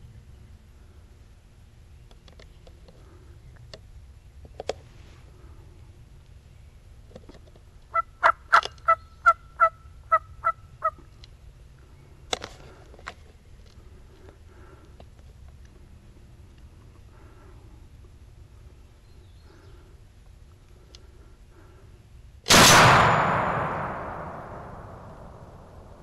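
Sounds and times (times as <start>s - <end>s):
turkey yelping: 7.9s - 11.0s.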